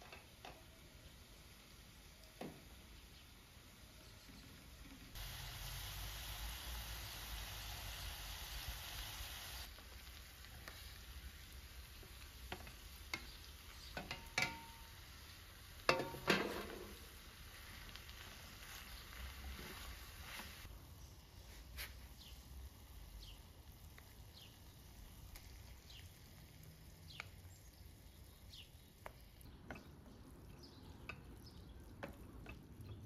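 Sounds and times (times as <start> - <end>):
meat sauce sizzling in a pan: 0.2 - 33.0
spoon clinking and knocking: 14.0 - 14.8.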